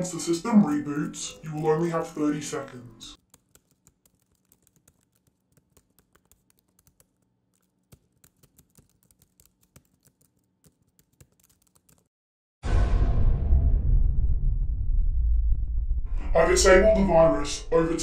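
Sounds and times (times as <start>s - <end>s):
laptop keyboard typing: 0.7s - 2.0s, 3.2s - 12.1s.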